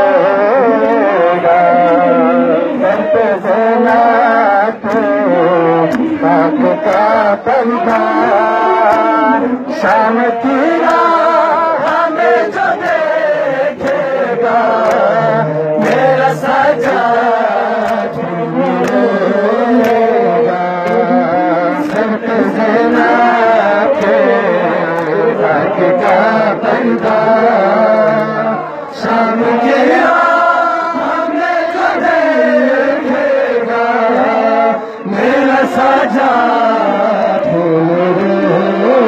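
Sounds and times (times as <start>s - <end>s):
men chanting a lament: 0.0s - 39.0s
hands slapping chests: 14.8s - 15.2s, 17.7s - 20.2s, 20.8s - 23.3s.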